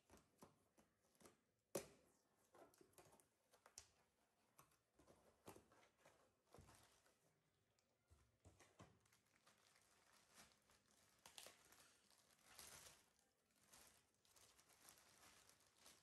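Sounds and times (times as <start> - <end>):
plastic bag crinkling: 9.0 - 16.0.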